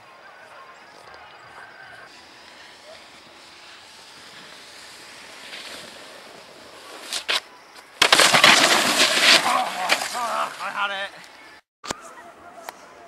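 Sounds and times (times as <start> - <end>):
faint steady hiss: 2.0 - 13.0
snowboard edge scraping snow: 2.1 - 10.9.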